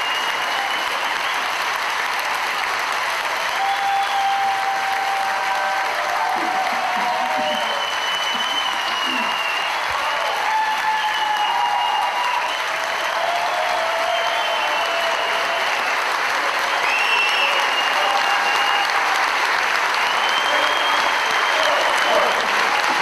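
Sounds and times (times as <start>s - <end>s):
crowd applauding: 0.0s - 23.0s
crowd cheering: 0.0s - 23.0s
high shouts or whistles: 3.5s - 15.8s, 16.7s - 19.1s, 20.0s - 22.6s.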